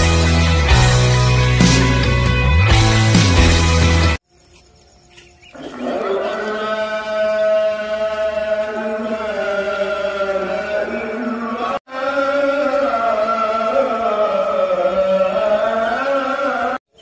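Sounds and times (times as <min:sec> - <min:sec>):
voice chanting from a mosque: 0:05.6 - 0:16.8.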